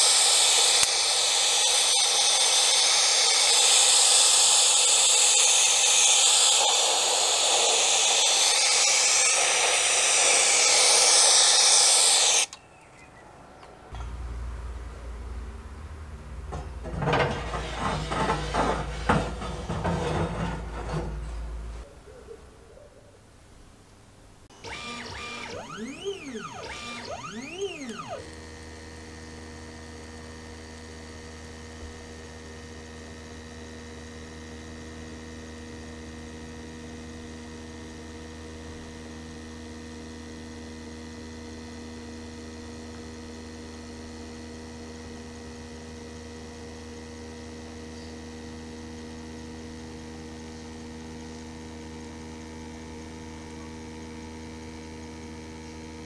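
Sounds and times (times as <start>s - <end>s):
stepper motors whining: 0.0s - 15.3s, 24.5s - 28.8s
engraver machine humming: 24.5s - 29.3s.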